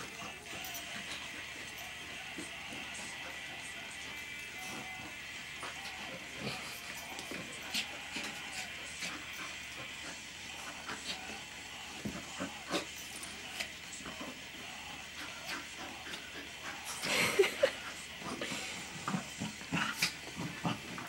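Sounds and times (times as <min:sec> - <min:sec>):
puppies scuffling on a rug: 0:00.0 - 0:14.0.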